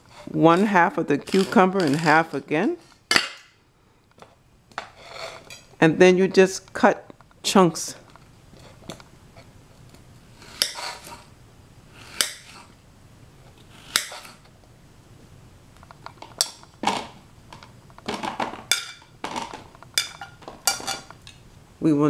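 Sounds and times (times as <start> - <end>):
knife scraping across plate: 0.0 - 3.0, 4.8 - 5.7, 8.5 - 9.5, 10.3 - 11.3, 11.9 - 12.7, 13.6 - 14.5
knife striking ceramic plate: 10.5 - 11.2, 12.1 - 12.6, 13.8 - 14.4, 20.0 - 21.1.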